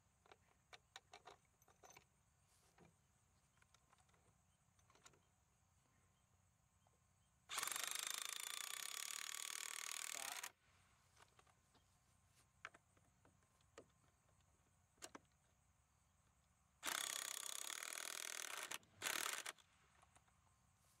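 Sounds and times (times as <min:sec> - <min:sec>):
cordless drill running: 0:07.5 - 0:10.5, 0:16.8 - 0:19.6.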